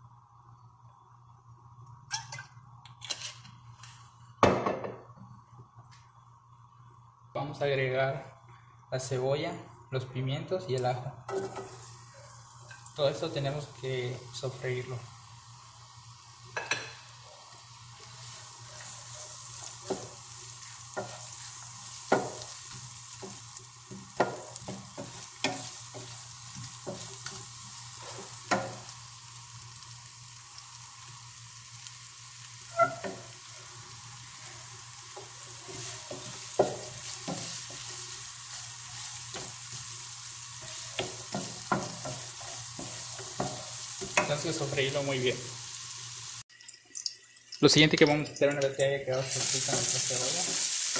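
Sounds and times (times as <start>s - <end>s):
vegetables sizzling in oil: 10.7s - 47.5s, 48.7s - 50.9s
wooden spoon knocking on pan: 22.1s - 22.5s, 23.2s - 26.1s, 36.1s - 37.8s, 40.9s - 44.4s.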